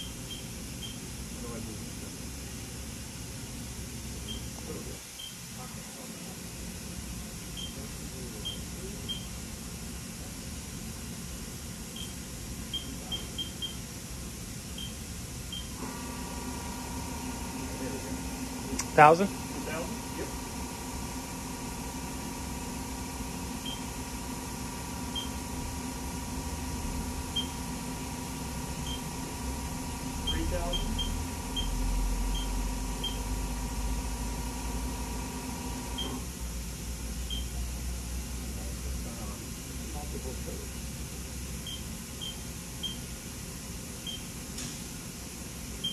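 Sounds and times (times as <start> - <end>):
steady low hum: 0.0 - 45.9
keypad beeps: 12.0 - 13.8
machine whine: 14.8 - 36.3.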